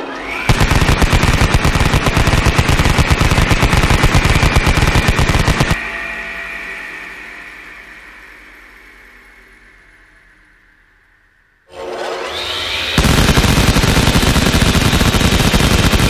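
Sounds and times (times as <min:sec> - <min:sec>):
high whine: 0:00.0 - 0:16.0
machine-gun fire: 0:00.5 - 0:05.8, 0:13.0 - 0:16.0.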